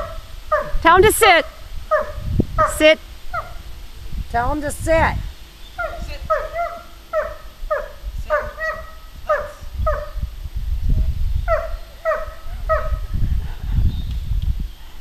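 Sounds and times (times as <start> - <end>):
dog barking: 0.0 - 0.8, 1.9 - 2.8, 5.8 - 10.2, 11.5 - 13.0.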